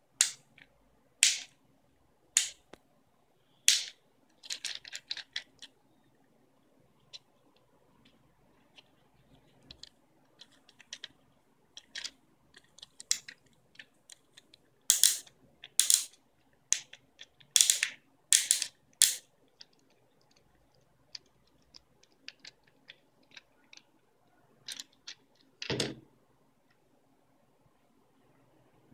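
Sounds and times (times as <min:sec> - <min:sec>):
fidget cube clicking: 0:11.8 - 0:23.9.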